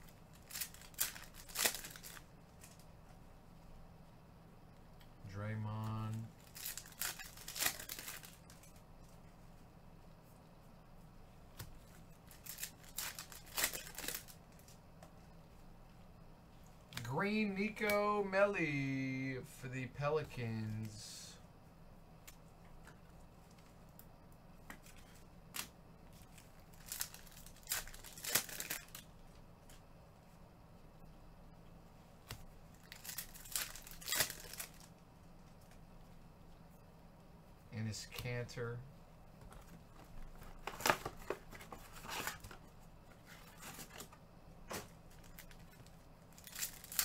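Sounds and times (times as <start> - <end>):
trading cards rustling: 0.0 - 2.8, 5.8 - 8.8, 11.8 - 14.8, 24.8 - 29.1, 32.8 - 34.9, 39.5 - 47.0.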